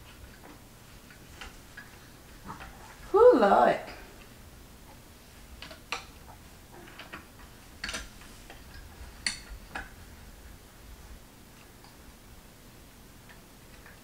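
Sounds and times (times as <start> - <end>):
wooden parts clicking and tapping: 5.6 - 10.0.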